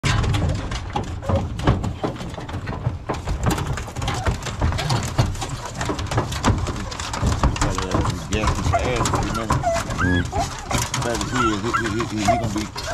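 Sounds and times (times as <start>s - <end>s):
knocks and rattles of dog box: 0.0s - 12.9s
dogs barking: 8.4s - 12.9s.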